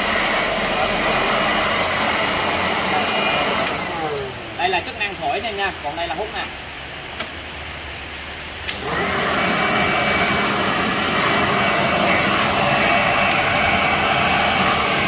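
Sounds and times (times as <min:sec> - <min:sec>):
blower motor whirring: 0:00.0 - 0:05.0, 0:08.6 - 0:15.0.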